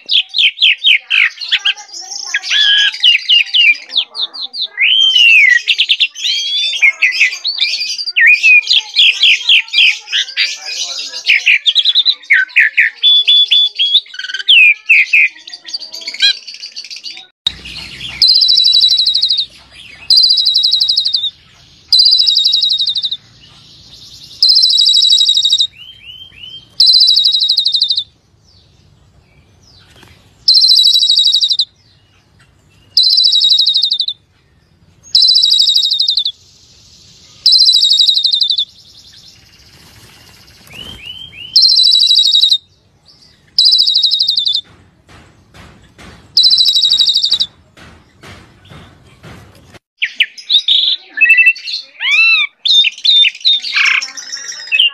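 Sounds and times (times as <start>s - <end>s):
harsh rattling bird trill: 0.1s - 34.2s, 35.0s - 44.7s, 46.3s - 47.5s
bird warbling: 17.5s - 23.4s, 24.2s - 28.2s, 29.8s - 31.8s, 32.8s - 34.2s, 35.1s - 36.4s, 37.4s - 42.6s, 43.5s - 44.7s, 46.3s - 47.5s.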